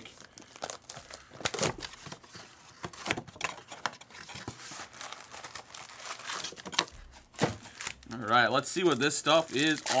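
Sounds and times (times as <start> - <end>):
plastic wrap crinkling and tearing: 0.0 - 2.2, 4.3 - 10.0.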